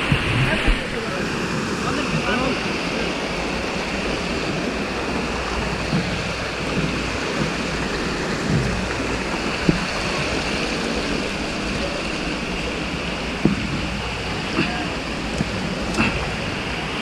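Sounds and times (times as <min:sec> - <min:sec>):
stream rushing over rocks: 0:00.0 - 0:17.0.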